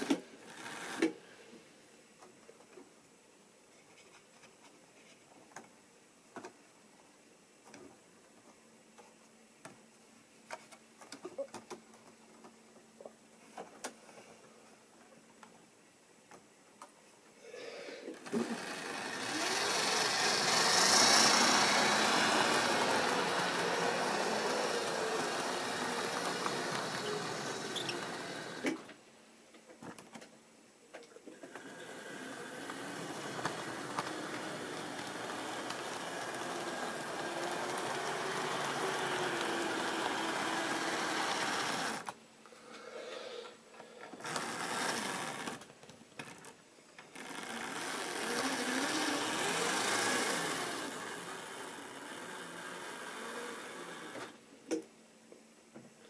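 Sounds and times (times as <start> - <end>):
model train motor whining: 0.0 - 1.2, 18.0 - 29.0, 31.3 - 42.2, 43.8 - 54.4.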